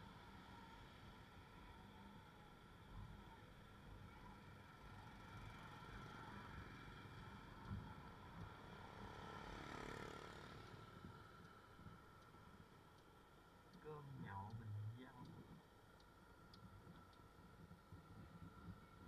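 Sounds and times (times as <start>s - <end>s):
motorbike engine and road rumble: 4.1s - 12.8s.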